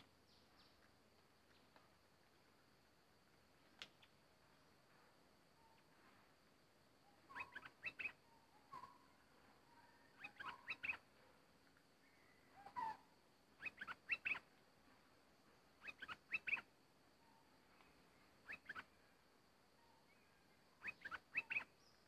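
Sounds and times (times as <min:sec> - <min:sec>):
bird singing whistled notes: 0:07.0 - 0:11.0, 0:12.0 - 0:14.5, 0:15.8 - 0:17.5, 0:18.4 - 0:19.0, 0:19.8 - 0:22.0.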